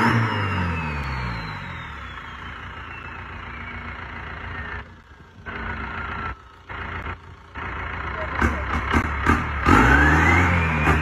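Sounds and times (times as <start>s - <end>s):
turbocharger whistle falling: 0.0s - 5.0s
diesel engine idling: 0.0s - 11.0s.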